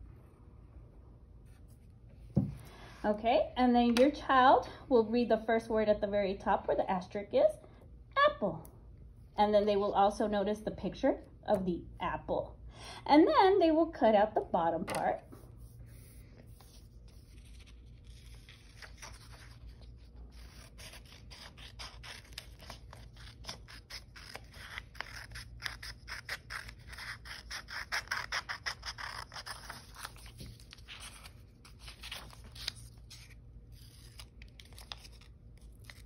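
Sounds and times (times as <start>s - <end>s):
paper rustling: 15.3s - 25.2s, 29.1s - 36.0s
scissors snipping paper: 17.1s - 36.0s.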